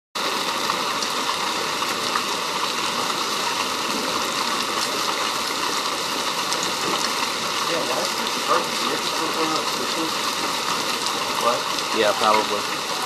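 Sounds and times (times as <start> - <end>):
hail and heavy rain pelting: 0.2 - 13.0
hailstones ticking: 0.2 - 13.0.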